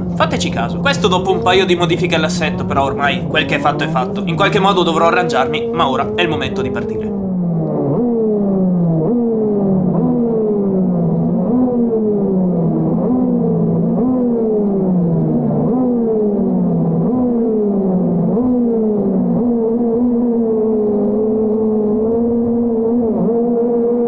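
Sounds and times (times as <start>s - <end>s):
kart engine revving: 0.0s - 7.2s.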